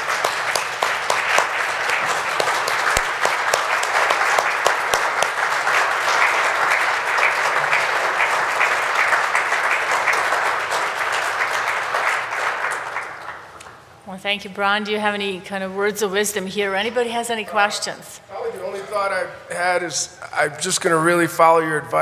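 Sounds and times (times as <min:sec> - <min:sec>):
audience applause: 0:00.0 - 0:13.6.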